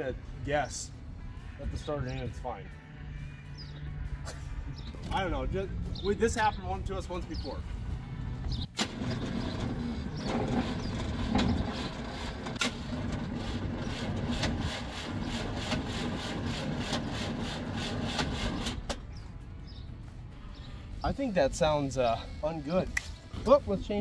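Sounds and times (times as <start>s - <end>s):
car starter cranking engine: 8.7s - 19.0s.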